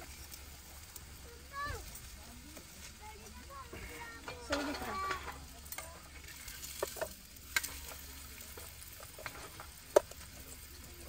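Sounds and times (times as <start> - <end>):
flatbread sizzling in a pan: 0.0 - 11.0
scraping in a pan: 3.6 - 10.3
tongs clinking against pan: 4.2 - 5.9.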